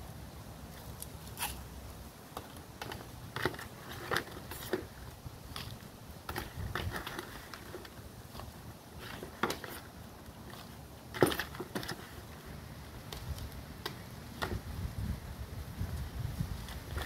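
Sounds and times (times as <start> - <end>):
trowel scraping potting soil: 1.3 - 1.7, 2.8 - 12.5.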